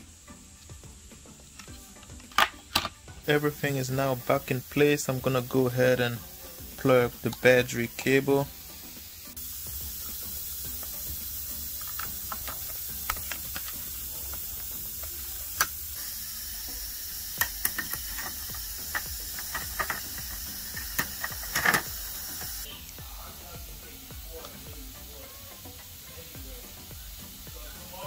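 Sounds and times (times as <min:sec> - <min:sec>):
steady hiss: 0:00.0 - 0:28.0
small plastic and metal clicks: 0:17.4 - 0:22.5.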